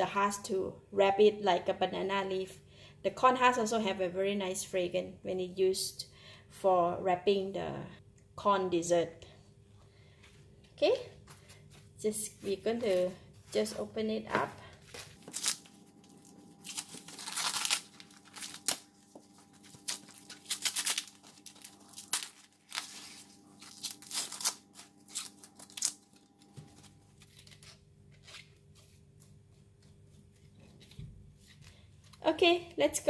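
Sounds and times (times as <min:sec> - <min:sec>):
corn husks tearing and rustling: 0:15.0 - 0:28.4.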